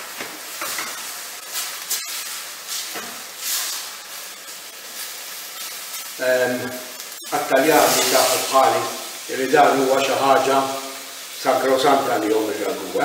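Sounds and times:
meat and vegetables sizzling in a pan: 0.0 - 13.0.

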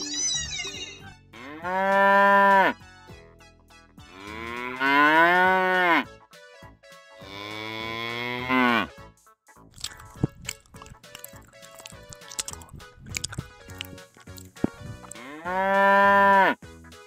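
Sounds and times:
cow mooing: 1.4 - 2.8, 4.1 - 6.1, 7.2 - 8.9, 15.1 - 16.6.

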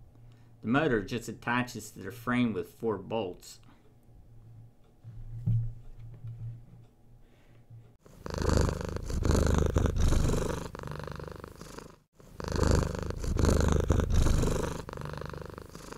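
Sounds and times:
cat purring: 8.0 - 15.9.

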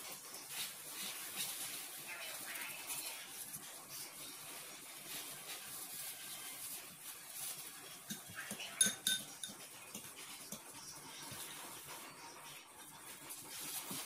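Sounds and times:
soft rustle of breadcrumbs: 0.0 - 8.8, 9.8 - 14.0
utensil striking metal bowl: 8.1 - 10.0.

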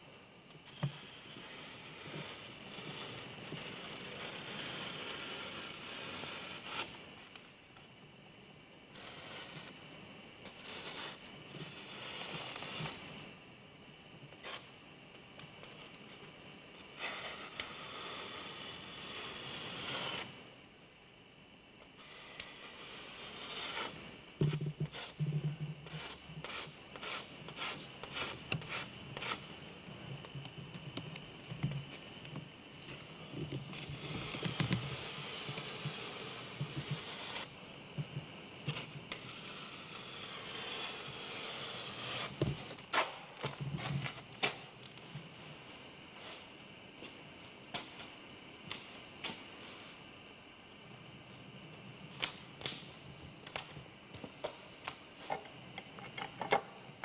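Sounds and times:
drawing tool scraping a panel: 0.7 - 6.9, 8.9 - 9.8, 10.5 - 13.0, 17.0 - 20.3, 22.0 - 25.2, 25.8 - 29.4, 33.7 - 37.5, 38.7 - 43.1.

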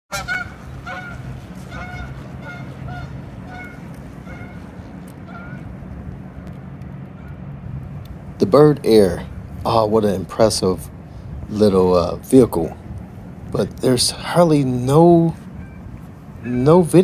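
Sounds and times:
geese honking: 0.1 - 6.4, 14.2 - 17.0
low rumble: 0.1 - 16.7.

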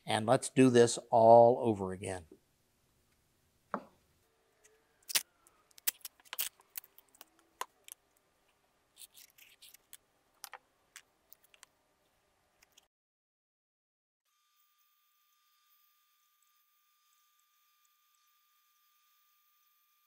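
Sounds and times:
masking tape pulled off roll: 4.6 - 8.0.

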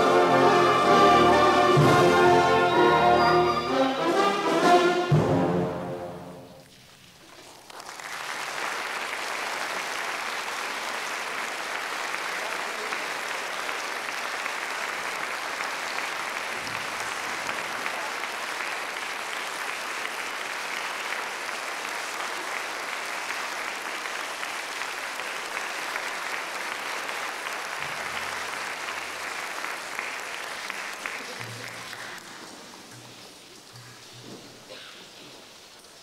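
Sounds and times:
audience applauding: 6.6 - 34.8.

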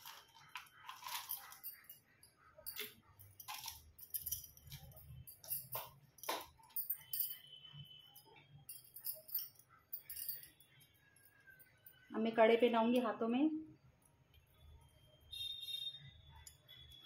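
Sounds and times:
metal jewellery jingling: 0.0 - 12.1.

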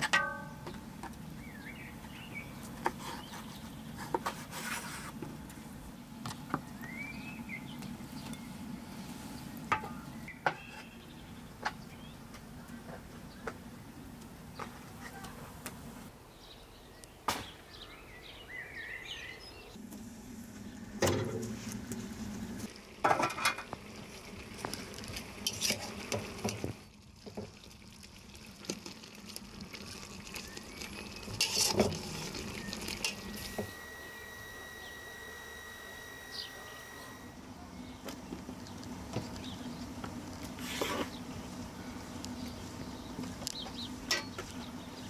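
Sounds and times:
birds chirping: 0.7 - 4.3, 5.8 - 19.8, 30.2 - 31.4, 32.2 - 45.0
dishes and pots clattering: 23.0 - 23.8
low steady hum: 27.6 - 45.0.

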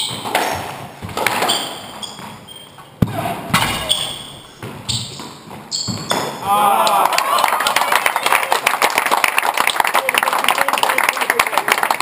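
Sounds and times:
shoes squeaking on wooden floor: 0.0 - 6.5
squash ball struck by rackets: 3.0 - 4.8.

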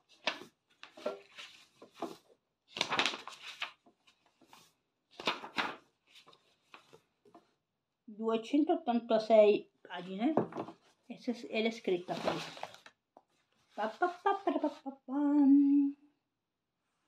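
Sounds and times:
book pages rustling: 0.0 - 7.5, 11.6 - 14.7.

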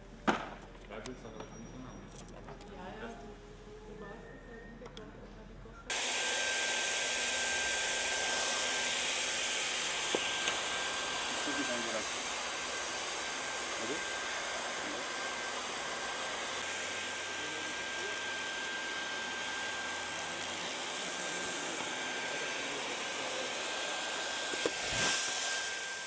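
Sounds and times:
hot-air blower rushing: 5.9 - 26.0.

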